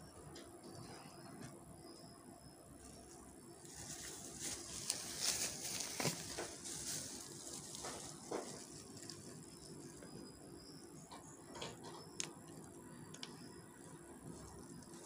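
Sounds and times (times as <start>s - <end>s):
plastic bottle crackles: 3.7s - 9.8s
plastic bags crinkling: 3.7s - 10.1s.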